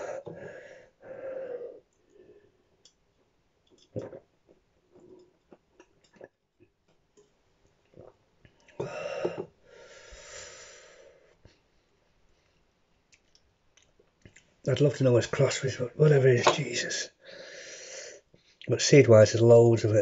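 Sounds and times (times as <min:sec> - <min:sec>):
mouth and swallowing clicks: 0:03.7 - 0:04.3.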